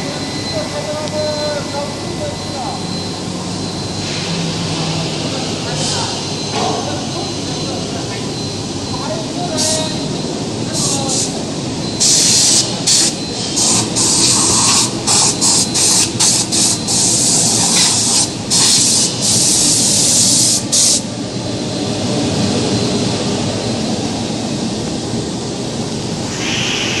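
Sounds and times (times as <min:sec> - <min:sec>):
blasting machine running: 0:00.0 - 0:27.0
hissing air blast bursts: 0:26.2 - 0:27.0.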